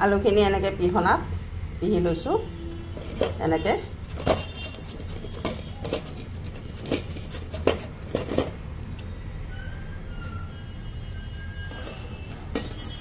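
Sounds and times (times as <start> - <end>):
potato grating on metal grater: 2.8 - 8.5, 11.7 - 13.0.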